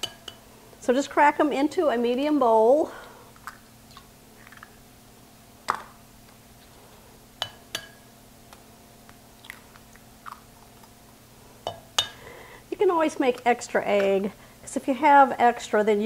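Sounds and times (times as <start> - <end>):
eggshells cracking: 9.1 - 11.0.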